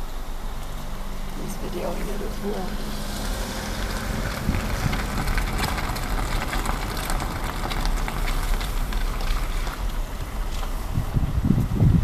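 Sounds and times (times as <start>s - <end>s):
road and engine rumble: 0.0s - 12.0s
tyre hiss on wet road: 2.2s - 11.2s.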